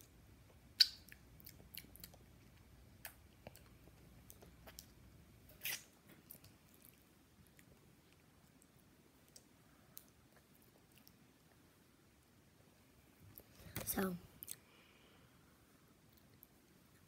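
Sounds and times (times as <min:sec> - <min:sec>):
wet mouth clicks and smacks: 0:00.8 - 0:02.2.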